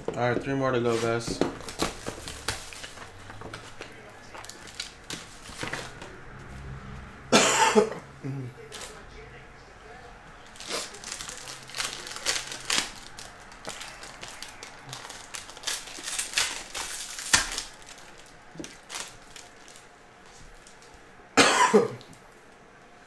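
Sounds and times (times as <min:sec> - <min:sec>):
foil wrapper crinkling and tearing: 0:01.0 - 0:05.9, 0:08.7 - 0:09.0, 0:10.4 - 0:20.9
person coughing: 0:07.3 - 0:08.6, 0:21.4 - 0:22.0.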